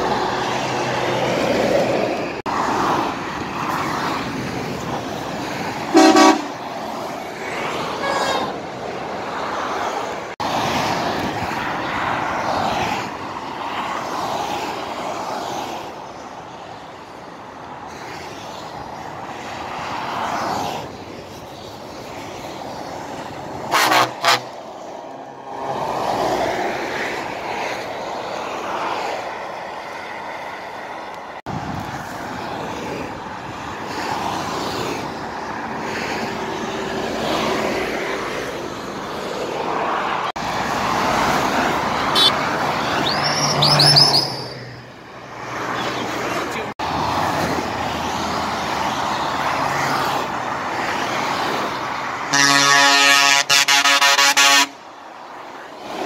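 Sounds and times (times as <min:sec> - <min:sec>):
motorway traffic passing: 0:00.0 - 0:56.0
truck horn: 0:05.9 - 0:06.6, 0:08.0 - 0:08.6, 0:23.7 - 0:24.6, 0:42.1 - 0:42.4, 0:52.3 - 0:54.8.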